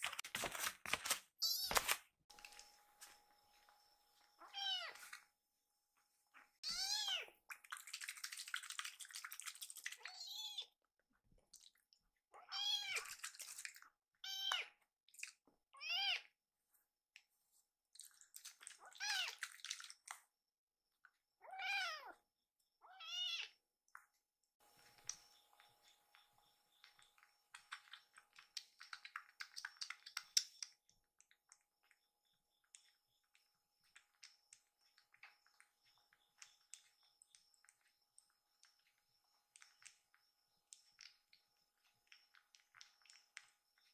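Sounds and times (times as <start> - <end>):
kitten meowing: 4.4 - 5.0, 6.6 - 7.3, 22.9 - 23.5
kitten suckling wet clicks: 26.8 - 32.0, 33.8 - 43.9.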